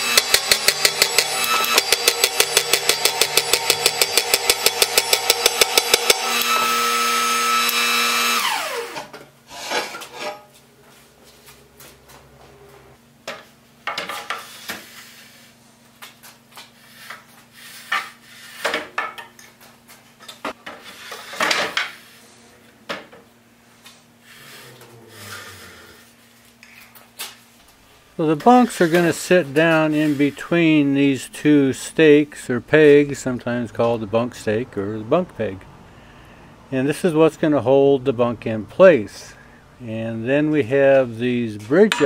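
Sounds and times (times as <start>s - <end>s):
power tool hammering: 0.0s - 9.2s.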